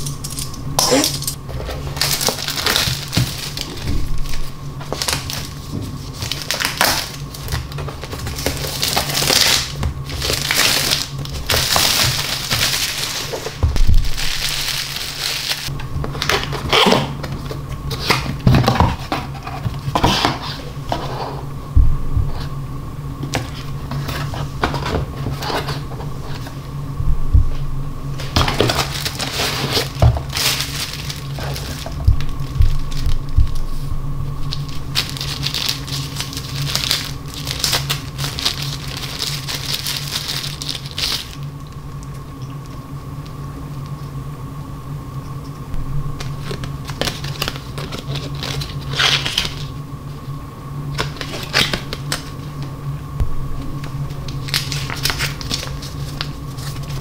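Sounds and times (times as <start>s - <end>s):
low hum: 0.0s - 57.0s
plastic wrap crinkling and tearing: 1.8s - 18.2s, 28.2s - 33.8s, 34.4s - 42.2s, 46.2s - 49.7s, 50.9s - 52.5s, 54.2s - 57.0s.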